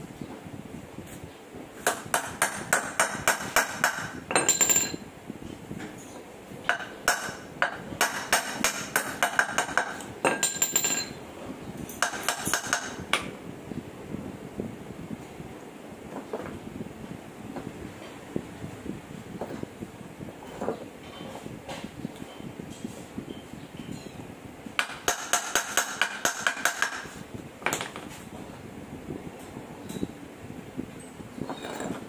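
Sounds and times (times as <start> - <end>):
hammer striking metal: 1.9 - 5.0.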